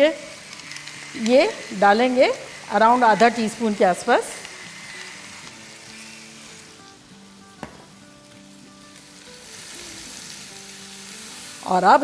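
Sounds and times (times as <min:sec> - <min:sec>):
soft background music: 0:00.0 - 0:12.0
vegetables sizzling in a wok: 0:00.0 - 0:12.0.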